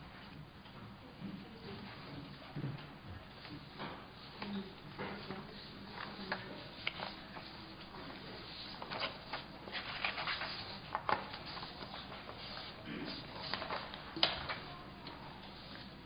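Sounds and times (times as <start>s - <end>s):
paper rustling and shuffling: 3.3s - 16.0s.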